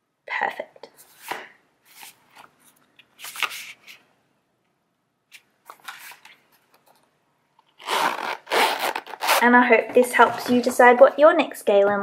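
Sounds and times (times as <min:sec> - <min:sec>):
zip opening: 0:07.8 - 0:09.6.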